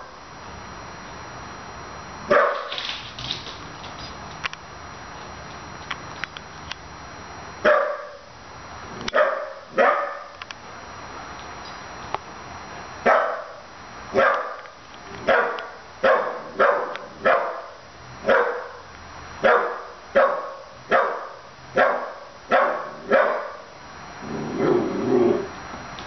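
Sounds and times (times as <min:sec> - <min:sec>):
puppy barking: 0:02.3 - 0:02.7, 0:07.6 - 0:08.2, 0:09.1 - 0:10.3, 0:13.1 - 0:13.6, 0:14.2 - 0:14.6, 0:15.3 - 0:18.8, 0:19.4 - 0:23.6.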